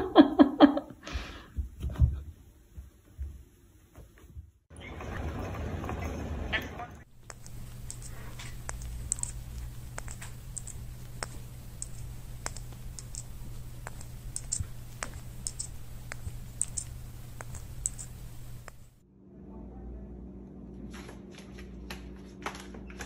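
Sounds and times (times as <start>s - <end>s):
low steady hum: 4.8s - 23.0s
light irregular clicks: 7.2s - 19.0s.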